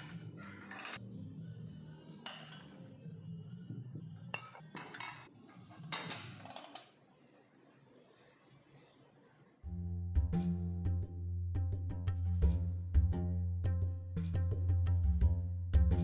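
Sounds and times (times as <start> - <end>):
dishes clinking and clattering: 0.0 - 1.0, 2.2 - 2.8, 4.1 - 7.0.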